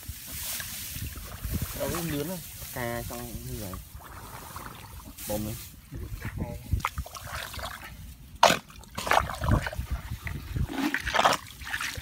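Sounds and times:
water sloshing: 3.6 - 5.4, 6.7 - 12.0.

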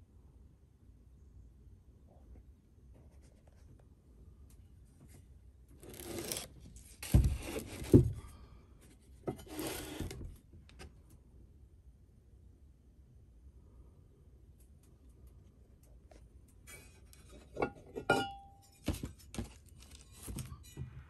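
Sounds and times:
rubbing scrape: 5.8 - 8.0, 9.3 - 10.3.

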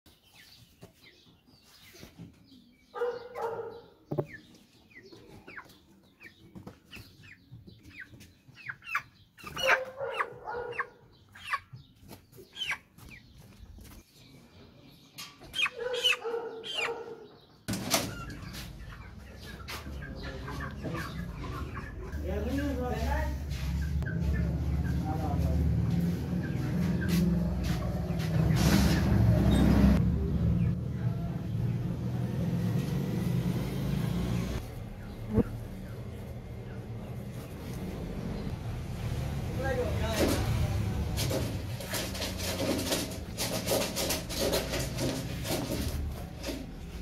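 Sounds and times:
chickens squawking: 2.9 - 14.0, 15.3 - 30.0, 34.5 - 38.6.

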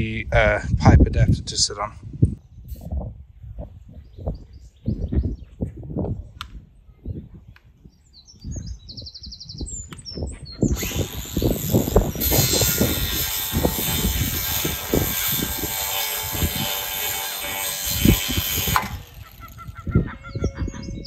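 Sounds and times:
wind buffeting microphone: 0.0 - 21.0
bird chirps: 7.8 - 11.5
cordless power tool running: 10.7 - 19.8.

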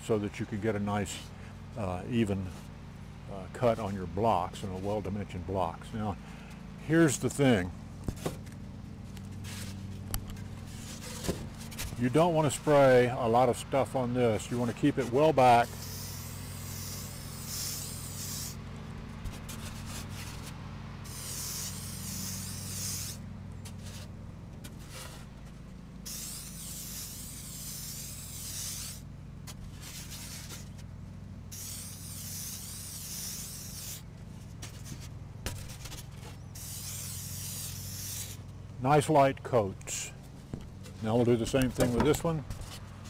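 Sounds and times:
lawnmower engine droning: 0.0 - 43.0
aerosol spray can hissing: 15.6 - 18.6, 21.1 - 23.2, 26.1 - 29.0, 31.5 - 34.0, 36.6 - 38.4.

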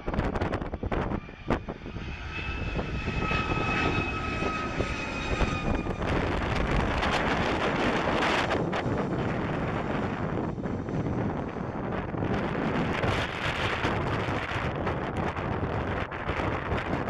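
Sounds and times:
high two-tone whine: 0.0 - 11.9
jet engines rumbling overhead: 0.0 - 17.0
wind gusts on microphone: 0.0 - 17.0.

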